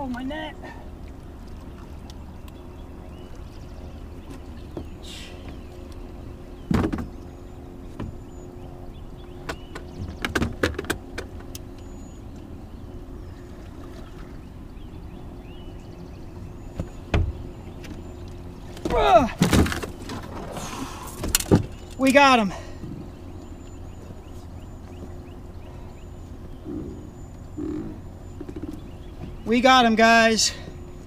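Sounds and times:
knocks against boat hull: 0:06.7 - 0:07.1.

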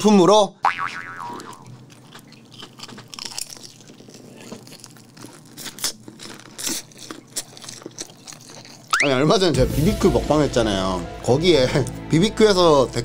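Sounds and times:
crunching fried chicken: 0:01.2 - 0:09.5.

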